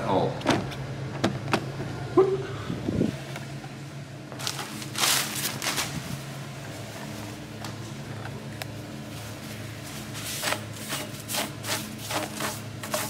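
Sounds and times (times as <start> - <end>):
steady low hum: 0.0 - 13.0
rustling handling noises: 4.3 - 10.6.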